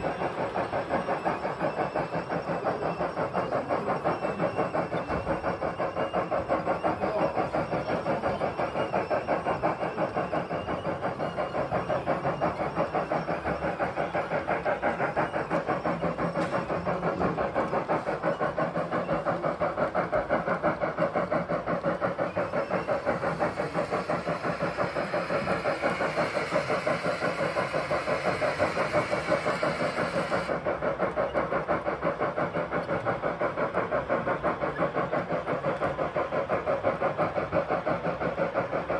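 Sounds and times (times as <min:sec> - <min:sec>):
model steam locomotive chuffs: 0:00.0 - 0:38.9
steam hiss: 0:00.0 - 0:38.9.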